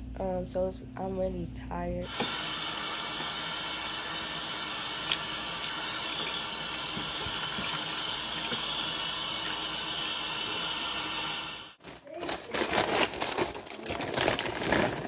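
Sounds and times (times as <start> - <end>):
hands washing under water: 2.1 - 11.4
faucet running into sink: 2.1 - 11.7.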